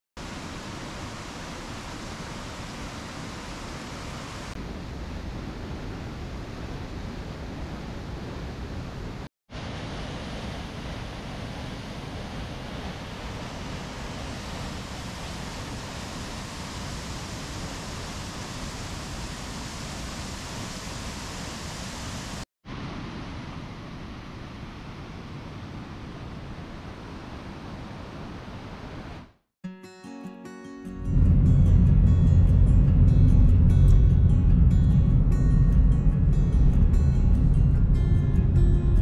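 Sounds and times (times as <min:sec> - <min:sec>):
waterfall crashing into pool: 0:09.5 - 0:23.2.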